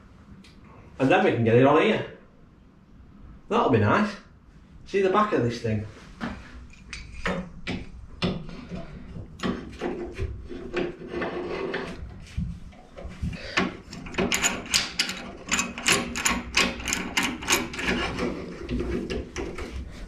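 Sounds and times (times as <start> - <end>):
metal clamps clicking and scraping: 13.8 - 19.7.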